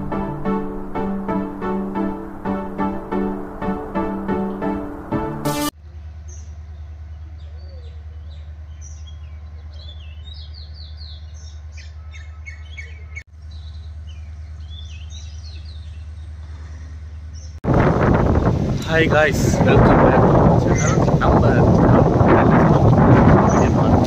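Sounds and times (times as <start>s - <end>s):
steady low rumble: 0.0s - 7.2s
small birds chirping: 6.2s - 17.6s, 20.7s - 21.1s, 23.4s - 23.9s.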